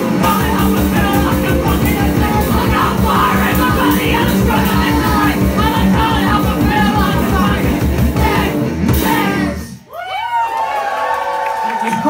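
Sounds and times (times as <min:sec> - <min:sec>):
drums fast beat: 0:00.0 - 0:09.7
electric guitar: 0:00.0 - 0:09.8
bass guitar: 0:00.0 - 0:09.9
singer shouting vocals: 0:00.2 - 0:09.8.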